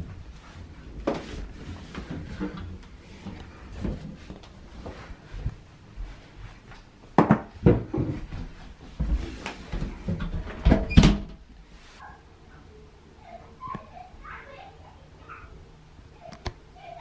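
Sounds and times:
close knocks and thumps: 7.2s - 9.2s.

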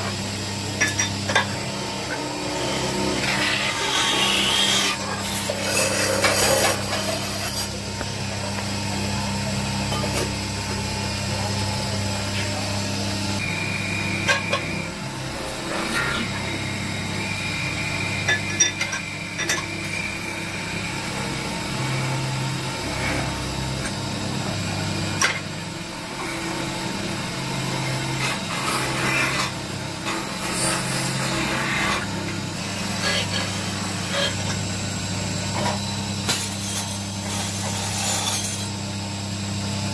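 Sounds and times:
metal lathe running: 0.0s - 39.9s
tool scraping metal workpiece: 0.8s - 7.8s, 28.2s - 34.5s, 35.6s - 38.7s.

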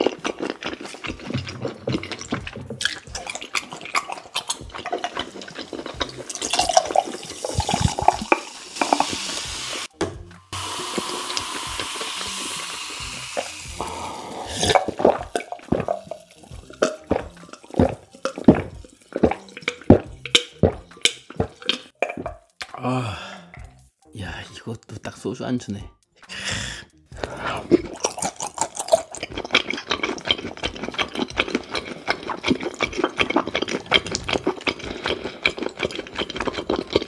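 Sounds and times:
swallowing gulps: 0.0s - 8.4s, 13.7s - 23.8s, 27.2s - 37.0s
soda fizzing: 0.0s - 9.9s, 10.6s - 22.3s
soda pouring over ice: 4.9s - 9.9s, 10.6s - 19.9s.

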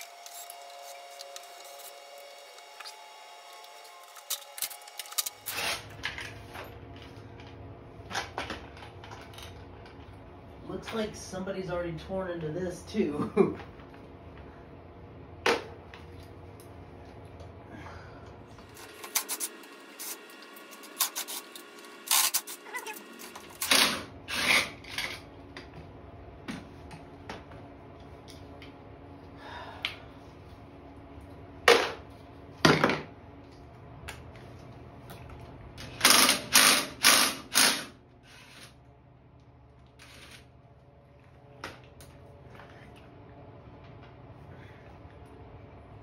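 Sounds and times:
cordless drill bursts: 36.0s - 38.6s.

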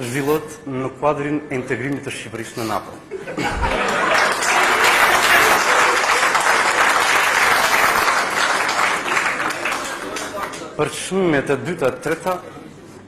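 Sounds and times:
audience applauding: 3.7s - 10.7s.

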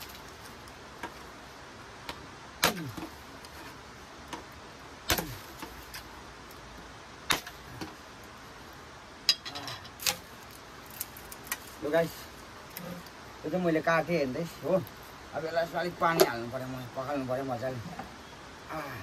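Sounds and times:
blade striking bamboo tube: 7.3s - 7.6s.

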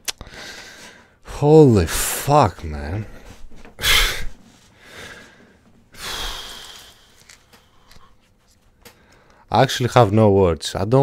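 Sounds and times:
man sighing: 3.8s - 4.4s, 5.9s - 7.4s
man exhaling sharply: 3.8s - 5.3s, 6.0s - 7.2s.

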